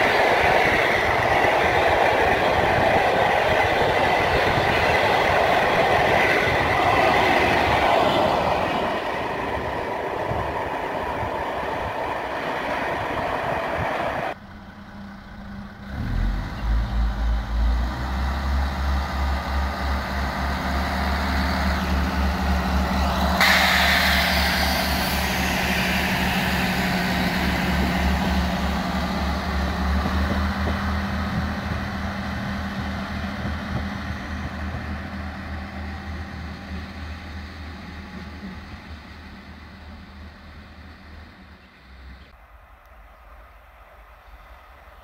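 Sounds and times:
diesel railcar passing: 0.0 - 45.0
sudden burst of noise: 23.4 - 27.8.

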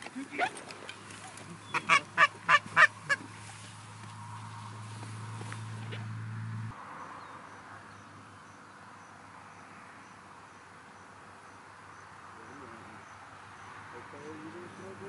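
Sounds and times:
insect chirping: 6.7 - 15.0.

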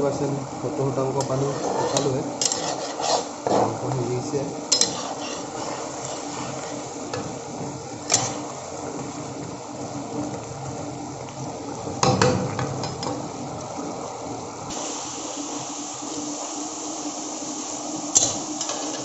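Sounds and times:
sizzling: 0.0 - 19.0
spatula stirring food in wok: 1.2 - 9.6.

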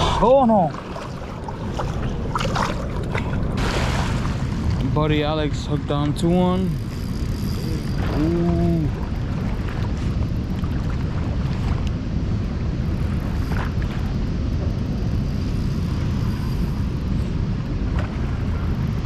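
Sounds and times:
river water flowing: 0.0 - 5.7
wind rumble: 0.0 - 19.0.

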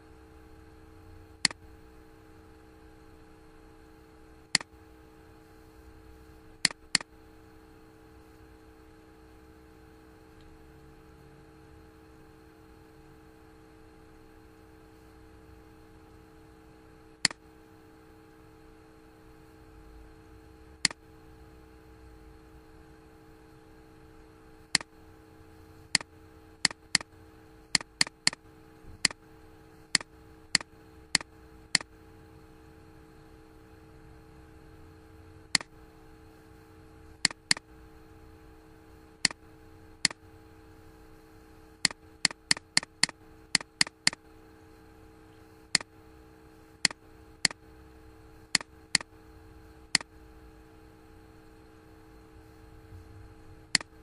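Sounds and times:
faint steady hum: 0.0 - 54.0
computer mouse clicks: 6.6 - 7.1, 26.0 - 27.1, 27.7 - 28.4, 29.0 - 29.2, 29.9 - 31.9, 35.5 - 35.7, 37.2 - 37.7, 41.8 - 44.2, 46.8 - 47.6, 48.5 - 49.1, 49.9 - 50.1, 53.7 - 54.0.

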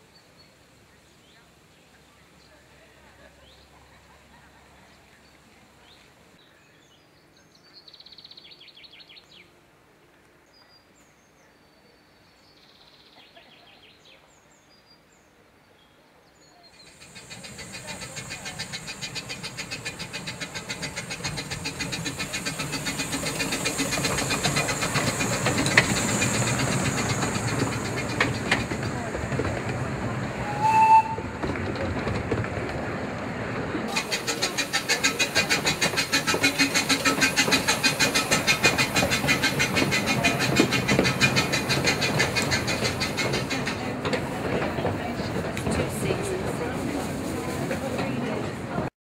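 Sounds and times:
bird chirps: 10.5 - 28.5
steam locomotive chugging: 16.7 - 48.9.

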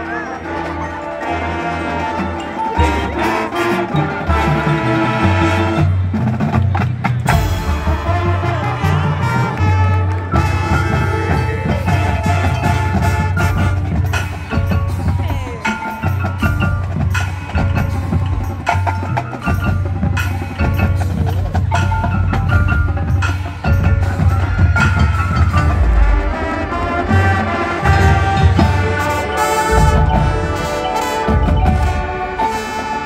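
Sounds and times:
drum strikes: 5.8 - 32.7
held band chords: 7.2 - 33.0
mallet keyboard strikes: 27.8 - 32.3.

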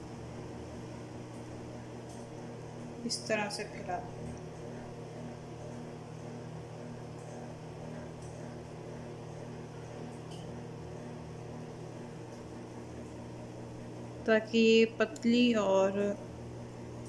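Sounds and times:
low electrical hum: 0.0 - 17.0.

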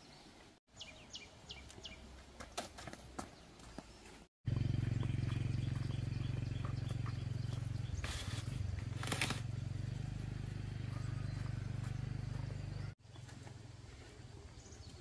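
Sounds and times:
low motor-like rumble: 4.5 - 14.6.

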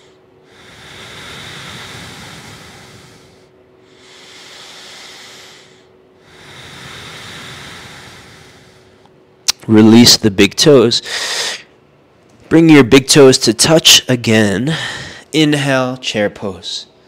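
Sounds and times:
man breathing deeply: 0.0 - 9.2, 11.0 - 11.8, 14.7 - 15.3.

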